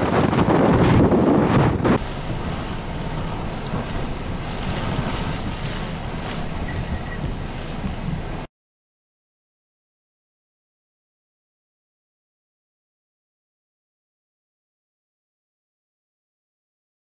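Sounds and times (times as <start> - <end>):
rushing water: 0.0 - 8.5
strong wind buffeting microphone: 0.0 - 8.5.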